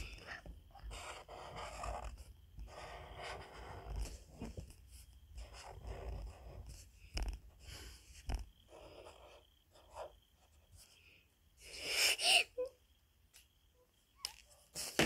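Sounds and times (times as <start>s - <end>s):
marker scratching on paper: 0.0s - 11.0s.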